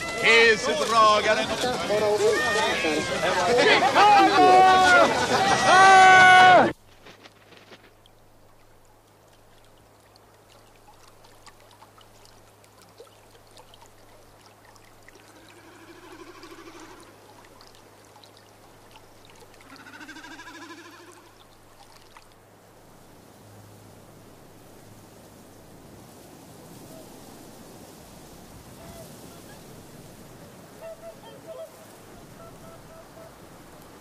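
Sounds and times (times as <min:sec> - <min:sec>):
faint trickling water: 0:00.0 - 0:06.1, 0:06.7 - 0:34.0
swan calling: 0:00.0 - 0:06.7, 0:15.1 - 0:17.6, 0:19.4 - 0:21.6, 0:26.8 - 0:27.3, 0:28.6 - 0:34.0.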